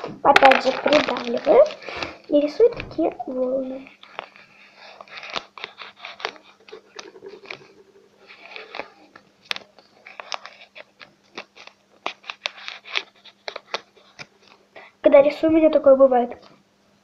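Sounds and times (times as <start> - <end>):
faint steady hum: 0.0 - 17.0
pencil scratching on paper: 3.8 - 9.1.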